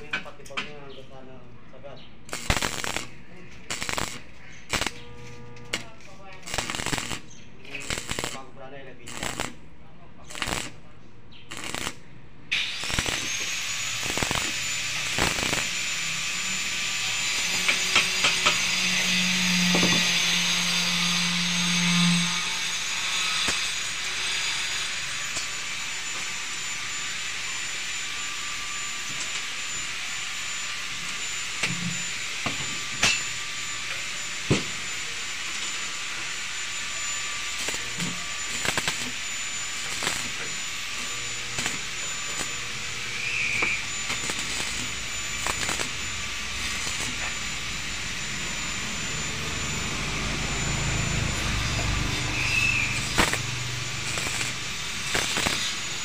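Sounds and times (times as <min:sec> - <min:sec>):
welding arc crackling hiss: 0:02.3 - 0:09.6, 0:10.3 - 0:10.8, 0:11.5 - 0:56.0.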